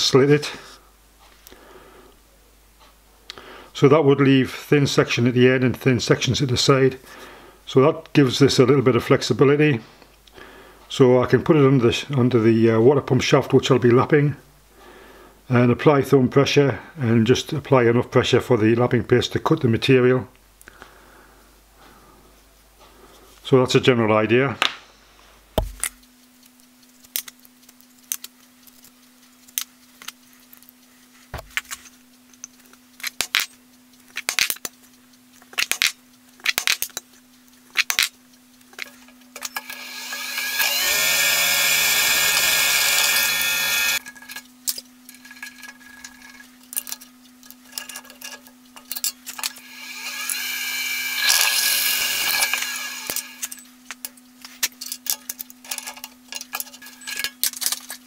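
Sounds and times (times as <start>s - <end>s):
motor hum: 37.4s - 58.0s
drill press drilling into metal: 39.4s - 44.2s, 49.4s - 53.6s.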